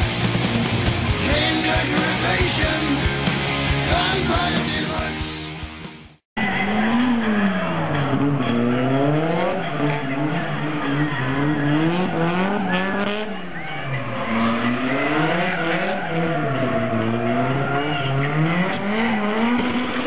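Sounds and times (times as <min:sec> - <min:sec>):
rock music: 0:00.0 - 0:06.2
car engine revving: 0:06.4 - 0:20.0.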